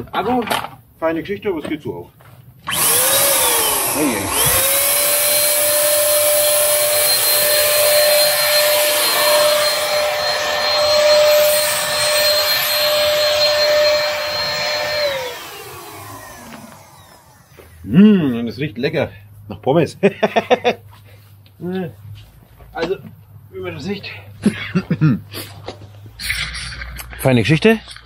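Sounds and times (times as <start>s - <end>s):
paint spray gun motor whine: 2.6s - 17.8s.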